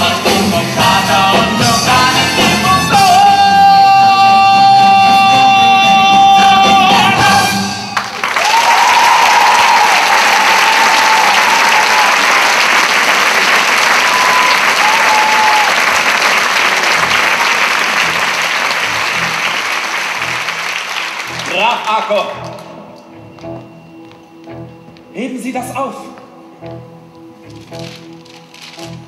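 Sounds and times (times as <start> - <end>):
man singing with orchestra: 0.0 - 7.9
audience applauding: 7.9 - 22.7, 27.8 - 29.0.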